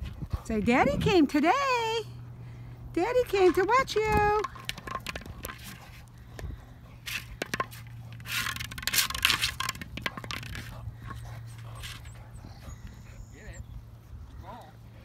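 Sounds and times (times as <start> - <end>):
ball scraping on asphalt: 3.1 - 12.9.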